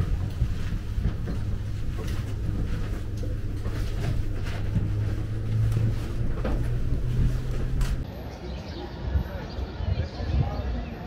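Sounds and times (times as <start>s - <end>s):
cable car cabin rumbling: 0.0s - 8.1s.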